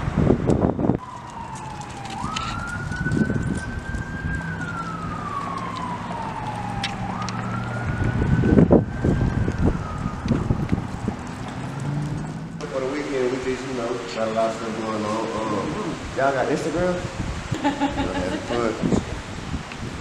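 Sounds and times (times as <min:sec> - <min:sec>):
siren wailing: 0:00.9 - 0:12.6, 0:14.2 - 0:16.2.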